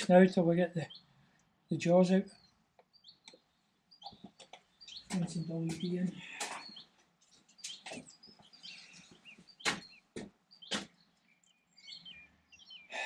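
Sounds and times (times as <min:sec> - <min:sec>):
small birds chirping: 0:00.0 - 0:13.0
sharp clicks and knocks: 0:09.6 - 0:10.9.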